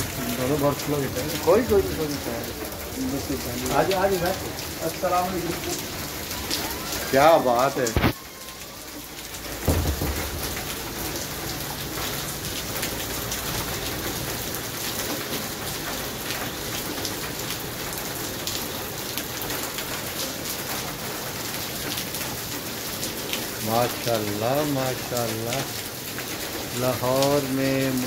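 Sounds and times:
sharp raindrop ticks: 0:00.0 - 0:08.6, 0:09.2 - 0:28.0
torrential rain on pavement: 0:00.0 - 0:28.0
low thump: 0:09.6 - 0:11.1.

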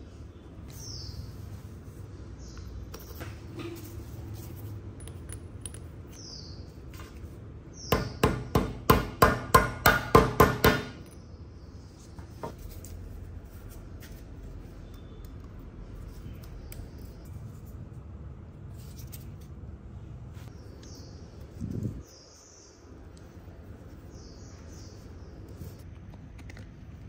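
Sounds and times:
hammer tapping on metal: 0:07.9 - 0:11.1.

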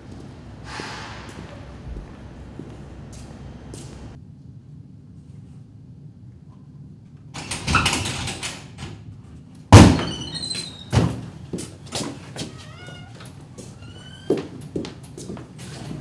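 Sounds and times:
door rattling: 0:07.4 - 0:08.9
door banging open: 0:09.7 - 0:11.3.

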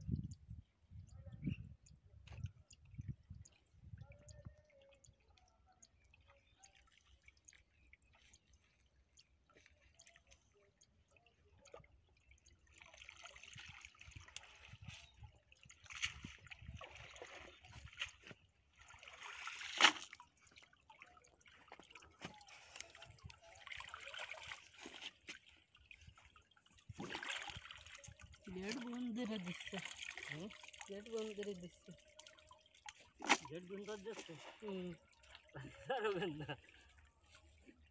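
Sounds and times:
water trickling and sloshing: 0:00.0 - 0:37.9
water splash: 0:15.8 - 0:20.3, 0:26.8 - 0:35.4.

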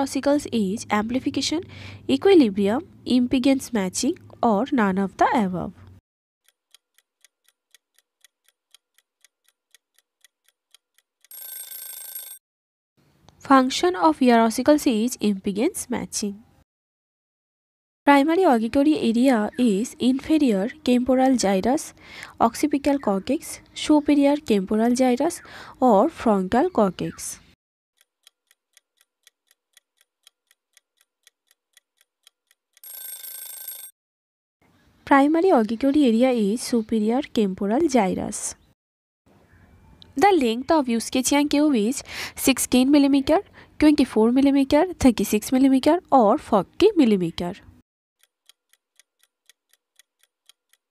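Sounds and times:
clock ticking: 0:06.4 - 0:11.4, 0:28.0 - 0:32.9, 0:48.2 - 0:50.9.

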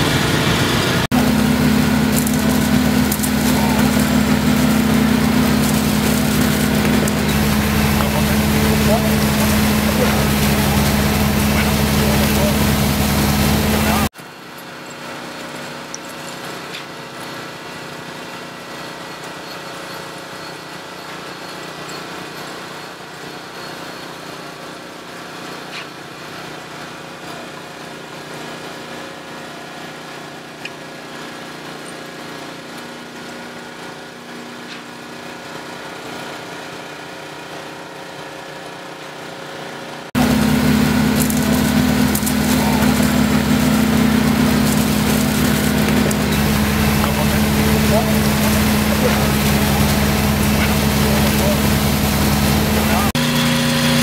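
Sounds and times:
loud close engine hum: 0:00.0 - 0:14.2, 0:40.0 - 0:54.0
small petrol engine running: 0:00.0 - 0:54.0.

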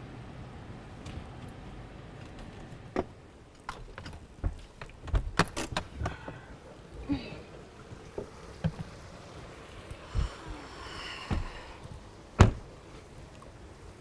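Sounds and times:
car door shutting thump: 0:12.4 - 0:12.7.

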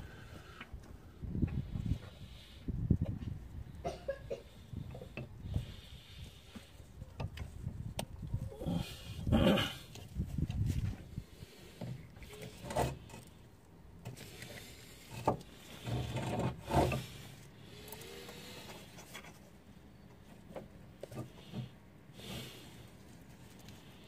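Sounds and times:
rubber and metal rubbing: 0:08.6 - 0:19.6.

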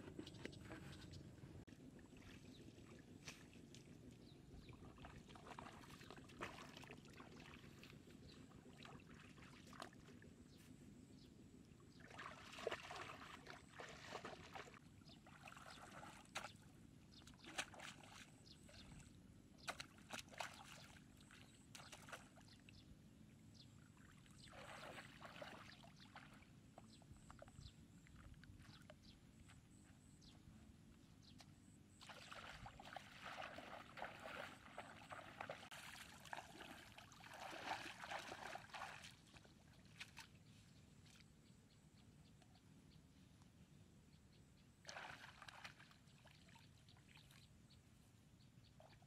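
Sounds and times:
shallow water splashing: 0:11.9 - 0:16.6, 0:24.0 - 0:26.6, 0:31.9 - 0:40.4, 0:44.8 - 0:46.6.

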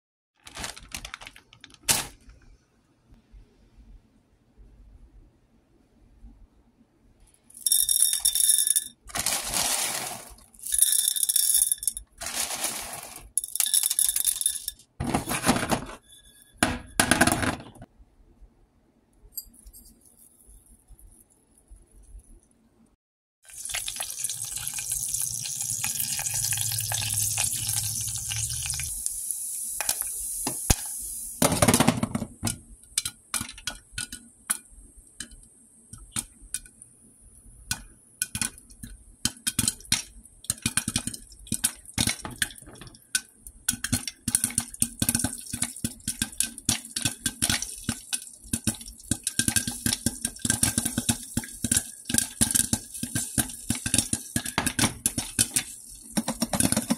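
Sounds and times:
oil sizzling in a pot: 0:23.4 - 0:31.4, 0:43.8 - 0:56.9
popcorn popping under a lid: 0:37.7 - 0:56.9.

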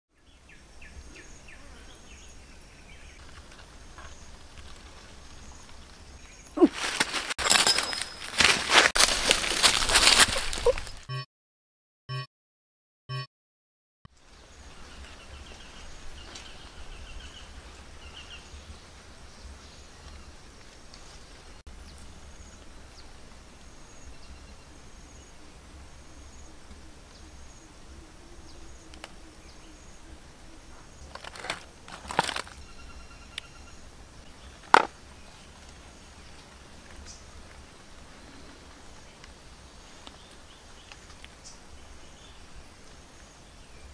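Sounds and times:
sharp crackles and snaps: 0:28.9 - 0:29.2, 0:38.6 - 0:41.6.

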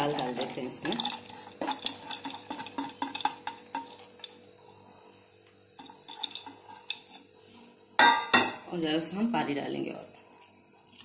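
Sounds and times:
spoon scraping steel: 0:00.8 - 0:04.8, 0:05.8 - 0:08.3.

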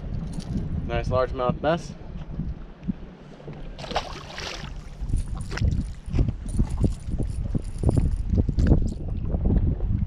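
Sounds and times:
wind buffeting microphone: 0:00.0 - 0:10.0
waves slapping boat hull: 0:02.1 - 0:07.0.

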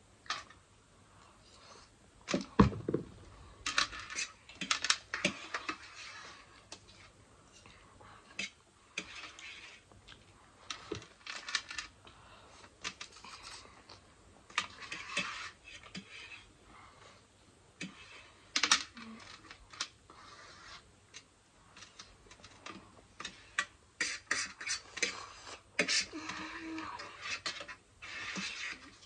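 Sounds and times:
forks scraping metal tray: 0:14.6 - 0:16.5, 0:23.2 - 0:29.0.

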